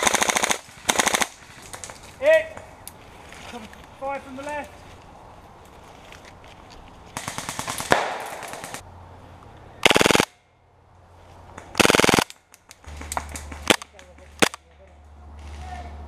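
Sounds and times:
airsoft rifles firing: 0:00.0 - 0:02.7, 0:07.2 - 0:08.8, 0:09.8 - 0:10.4, 0:11.7 - 0:14.6.

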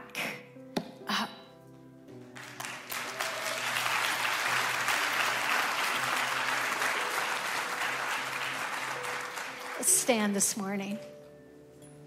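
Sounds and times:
soft music: 0:00.0 - 0:12.0
congregation applauding: 0:02.2 - 0:10.5.

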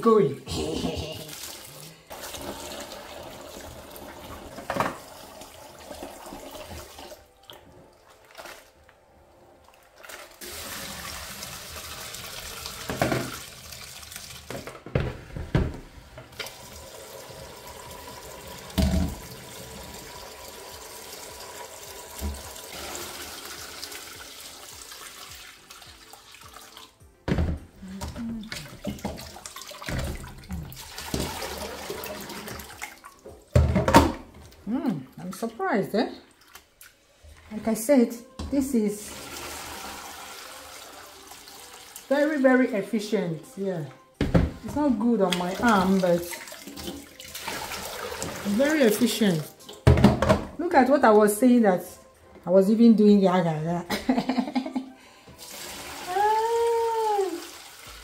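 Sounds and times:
water poured through sieve: 0:01.2 - 0:07.3, 0:08.0 - 0:08.8, 0:09.7 - 0:14.6, 0:28.4 - 0:33.2, 0:39.0 - 0:42.2, 0:45.3 - 0:49.8, 0:55.4 - 0:58.0
tap water splashing into bowl: 0:12.3 - 0:15.0, 0:18.7 - 0:19.4, 0:22.1 - 0:22.7, 0:23.6 - 0:34.5
bowl knocking against sink: 0:18.8 - 0:19.2.

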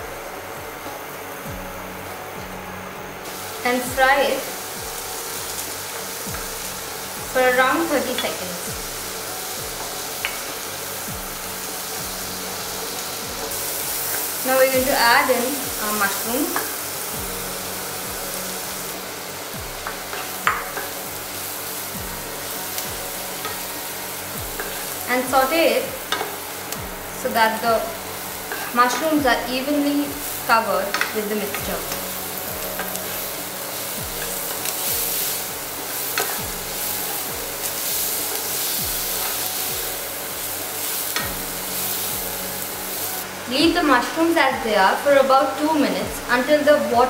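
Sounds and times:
mushrooms sizzling in a frying pan: 0:00.0 - 0:47.0
spatula knocking on pan: 0:19.8 - 0:20.9
spatula scraping pan: 0:28.5 - 0:29.1.

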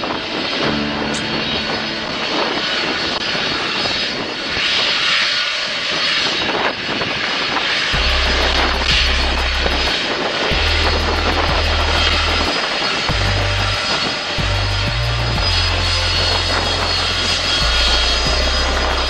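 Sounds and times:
jet engines roaring: 0:00.0 - 0:19.0.

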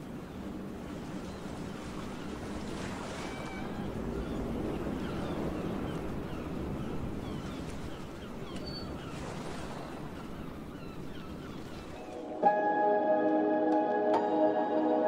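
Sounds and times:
wind: 0:00.0 - 0:13.2
ambient music with ringing tones: 0:12.0 - 0:15.0.

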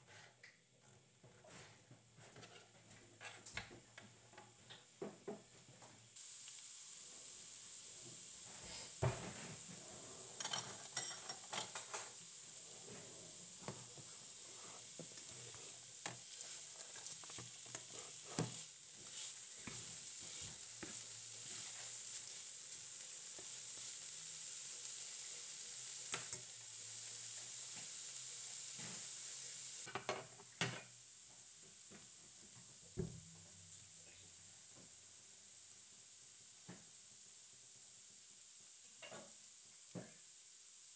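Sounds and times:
food sizzling in a frying pan: 0:01.1 - 0:40.9
spatula scraping and knocking pan: 0:08.5 - 0:22.4.

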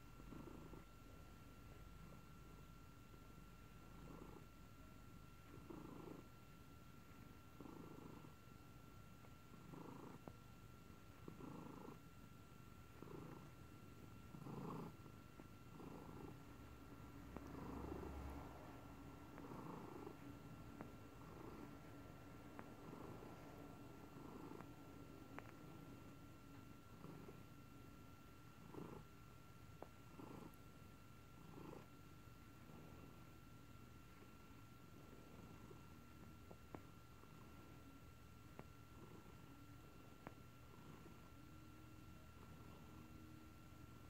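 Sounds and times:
cat purring softly: 0:00.0 - 0:44.0.

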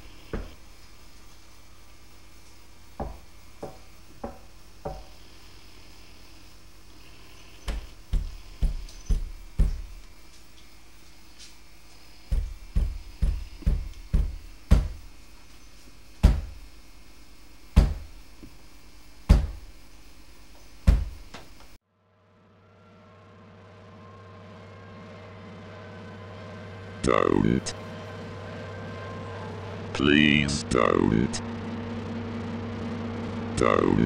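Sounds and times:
heavy dull thumps: 0:07.6 - 0:10.0, 0:12.3 - 0:15.2, 0:16.2 - 0:16.7, 0:17.7 - 0:18.2, 0:19.2 - 0:19.7, 0:20.8 - 0:21.5.

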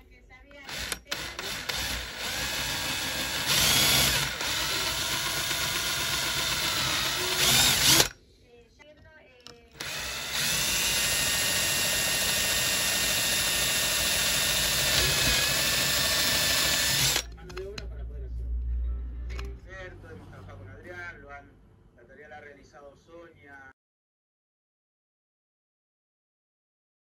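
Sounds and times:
electric drill boring wood: 0:00.6 - 0:08.1, 0:09.8 - 0:17.3.

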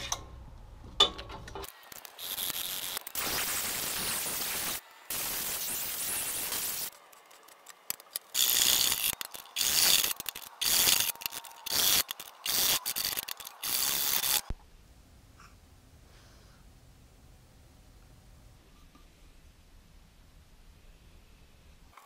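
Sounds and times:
angle grinder sanding metal: 0:08.4 - 0:14.5.

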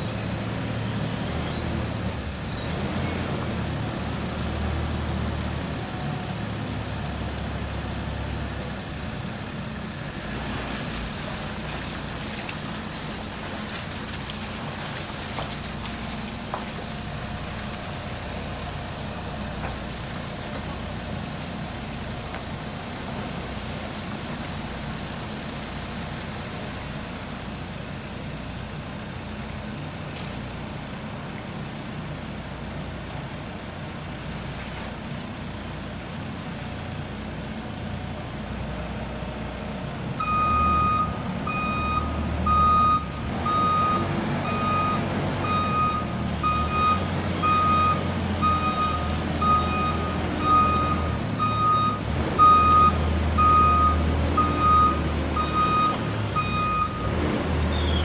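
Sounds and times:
diesel engine running: 0:00.0 - 0:58.0
reversing alarm beeping: 0:40.2 - 0:58.0.

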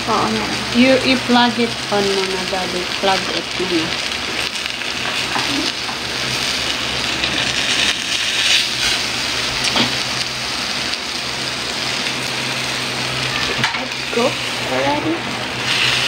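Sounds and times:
food sizzling on a grill plate: 0:00.0 - 0:16.0.

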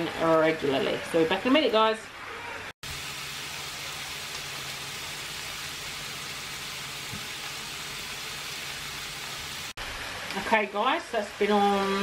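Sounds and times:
food sizzling in a frying pan: 0:02.8 - 0:12.0.

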